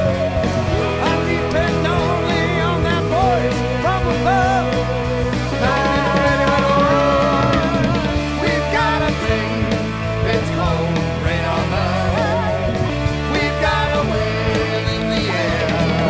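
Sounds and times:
rock music with lead vocal: 0:00.0 - 0:16.0.

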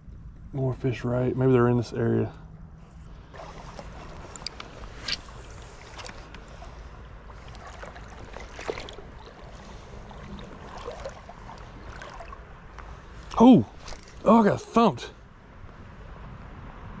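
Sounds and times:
low steady rumble: 0:00.0 - 0:17.0
creek water lapping and splashing: 0:02.9 - 0:14.6
small sharp splashes: 0:07.3 - 0:14.2.

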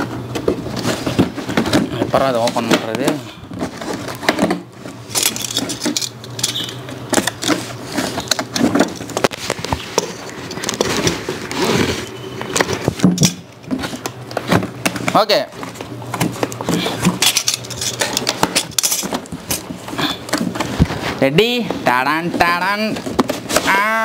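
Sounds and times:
cardboard flaps rustling and knocking: 0:00.0 - 0:05.1, 0:18.3 - 0:23.8.

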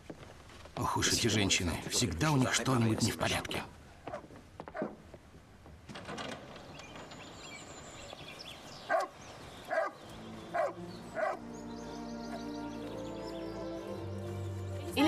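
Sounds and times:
dog barking: 0:04.1 - 0:05.0, 0:08.9 - 0:11.4
background music: 0:09.7 - 0:15.0.

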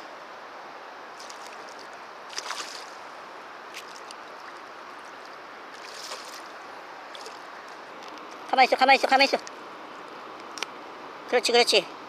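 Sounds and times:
fish splashing in water: 0:01.2 - 0:03.1, 0:03.8 - 0:07.5.

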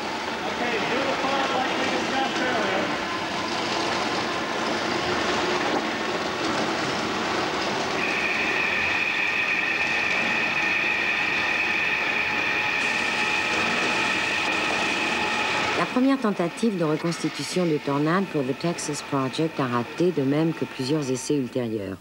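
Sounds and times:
high whistling tone: 0:07.9 - 0:21.1
loud rushing vapour hiss: 0:08.0 - 0:18.0.

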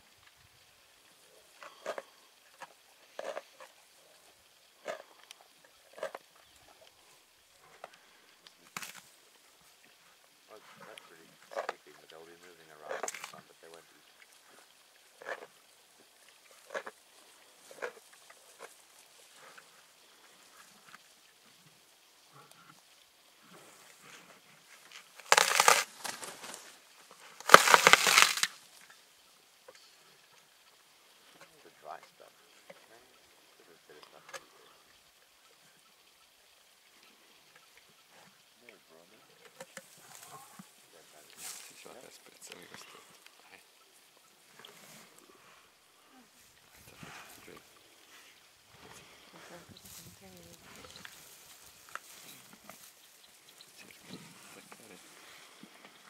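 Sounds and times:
lion tearing and chewing meat: 0:01.6 - 0:03.8, 0:08.6 - 0:09.1, 0:15.2 - 0:17.0, 0:24.9 - 0:26.6, 0:27.3 - 0:28.6.

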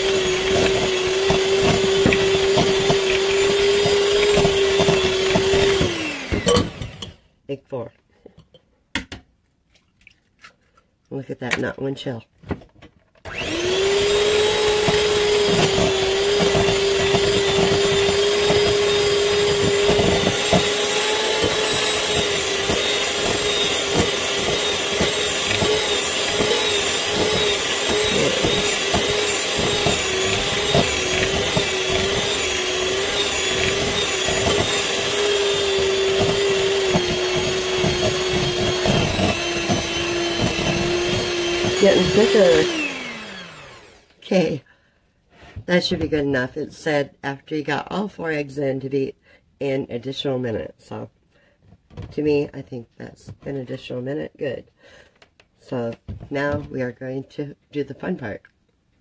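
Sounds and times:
electric hand mixer running: 0:00.0 - 0:07.2, 0:13.3 - 0:44.1.

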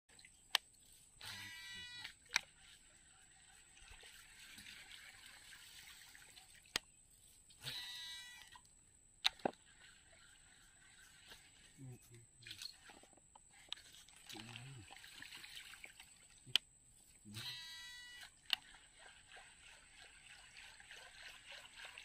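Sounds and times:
fishing reel brake whine: 0:01.2 - 0:02.2, 0:17.4 - 0:18.6.

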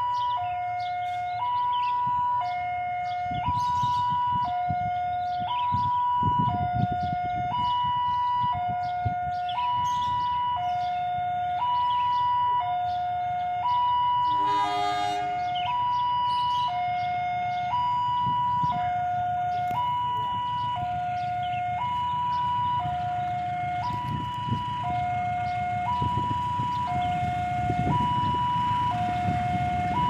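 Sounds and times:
level crossing two-tone alarm: 0:00.0 - 0:30.0
train horn blast: 0:14.2 - 0:15.7.

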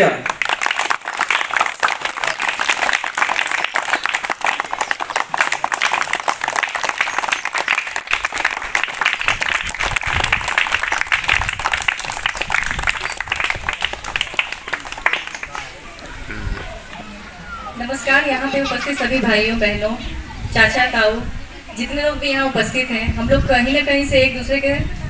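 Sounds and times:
crowd clapping: 0:00.0 - 0:16.2.

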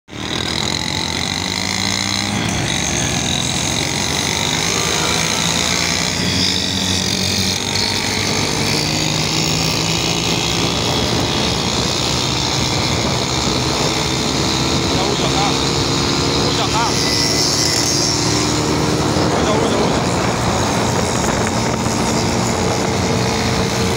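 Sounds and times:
road noise: 0:00.1 - 0:23.9
rushing wind: 0:00.1 - 0:23.9
two-stroke engines buzzing: 0:00.1 - 0:23.9.

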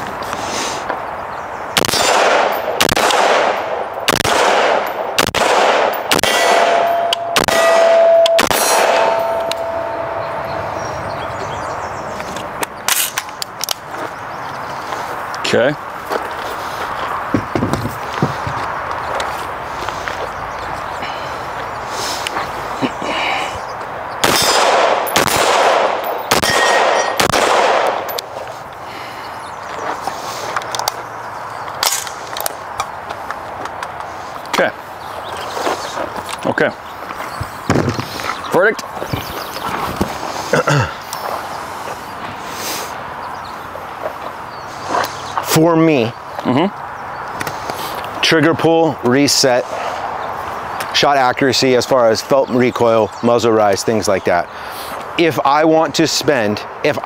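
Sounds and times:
rifle shots echoing: 0:01.8 - 0:10.9, 0:24.2 - 0:28.3
steady ringing tone: 0:06.4 - 0:11.7.

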